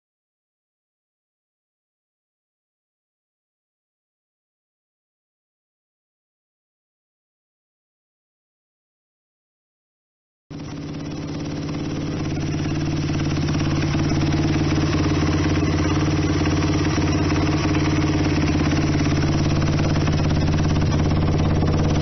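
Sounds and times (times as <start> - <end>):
motorcycle engine idling: 10.5 - 22.0.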